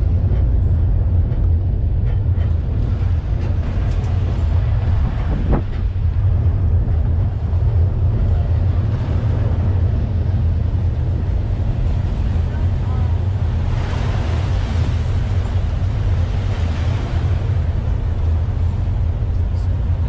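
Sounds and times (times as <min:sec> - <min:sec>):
vehicle engine and road rumble: 0:00.0 - 0:20.0.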